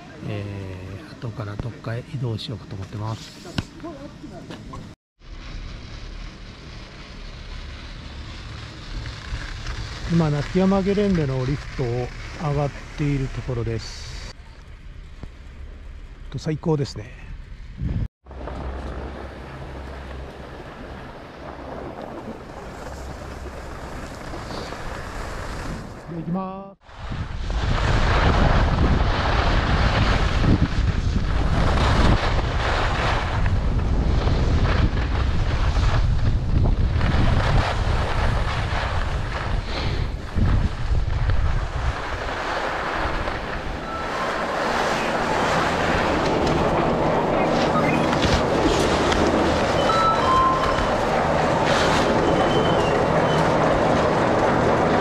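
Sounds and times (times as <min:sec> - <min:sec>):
skis hissing on packed snow: 0:05.2 - 0:14.3, 0:22.4 - 0:26.0, 0:37.0 - 0:46.2
skis scraping over snow: 0:05.2 - 0:14.4, 0:18.3 - 0:55.0
wind buffeting microphone: 0:26.8 - 0:43.8
chairlift machinery humming: 0:41.8 - 0:55.0
high metallic squeals: 0:43.8 - 0:45.3, 0:49.6 - 0:53.5.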